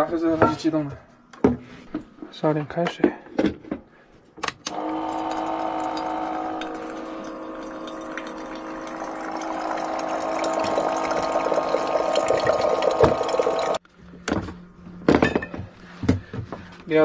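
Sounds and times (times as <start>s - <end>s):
tap water filling kettle: 4.7s - 13.8s
water pump hum: 4.7s - 13.8s.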